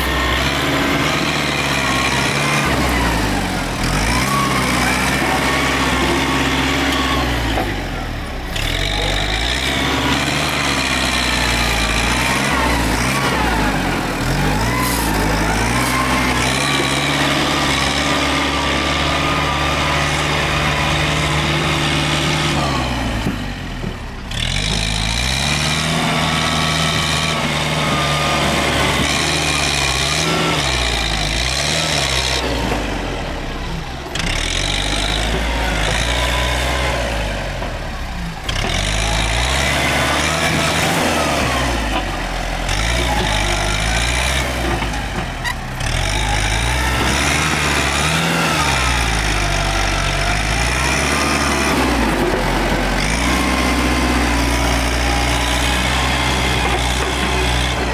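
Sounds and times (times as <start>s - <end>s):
dozer blade pushing soil: 0.0s - 57.9s
tractor engine under load: 0.0s - 57.9s.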